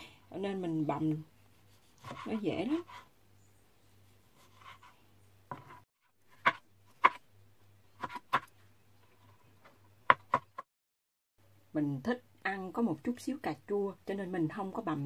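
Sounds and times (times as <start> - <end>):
knife chopping on plastic board: 6.4 - 7.2, 8.0 - 8.5, 10.0 - 10.7.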